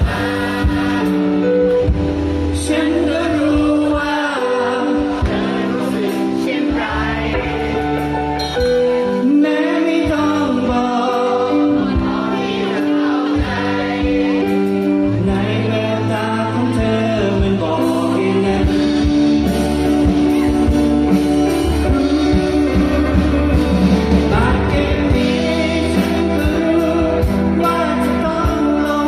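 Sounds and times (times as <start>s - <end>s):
electric guitar melody: 0.0s - 29.0s
keyboard chords: 0.0s - 29.0s
drum hits: 7.3s - 9.0s.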